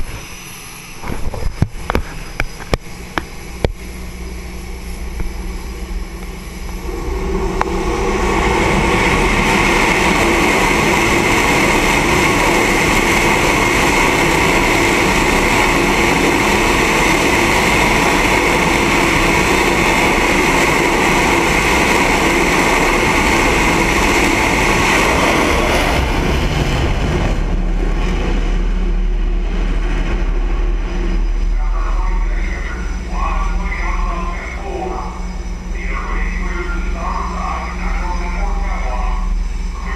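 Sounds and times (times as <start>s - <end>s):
jet engine roar with whine: 0.0s - 39.9s
low rumble: 0.0s - 39.9s.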